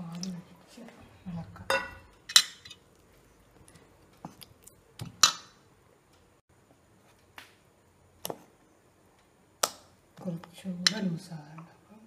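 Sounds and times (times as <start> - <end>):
spoon clinking metal bowl: 1.7 - 2.8.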